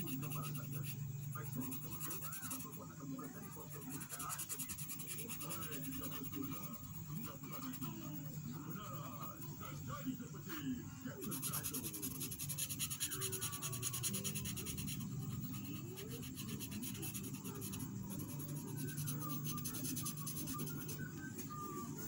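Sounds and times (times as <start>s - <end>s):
marker scribbling on paper: 0.0s - 9.8s, 11.2s - 22.0s.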